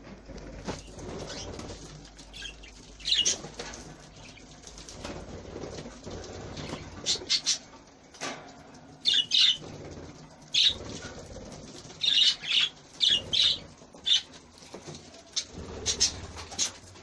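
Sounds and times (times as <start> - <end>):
wing flutters: 0.2 - 8.0, 8.9 - 17.0
budgerigars chirping: 0.8 - 3.6, 9.0 - 9.6, 12.0 - 14.3.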